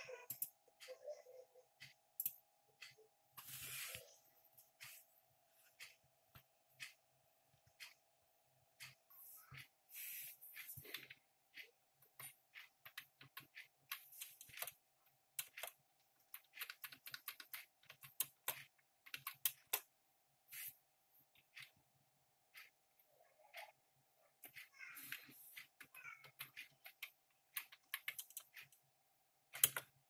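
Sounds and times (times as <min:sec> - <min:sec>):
keyboard keys clicking: 0:15.4 - 0:19.8, 0:26.3 - 0:28.8.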